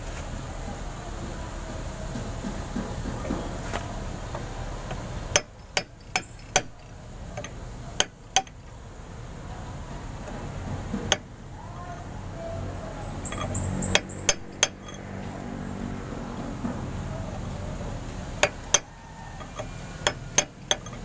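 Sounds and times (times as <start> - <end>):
hammer tapping metal rod: 4.9 - 8.6, 13.3 - 15.0, 18.4 - 21.0.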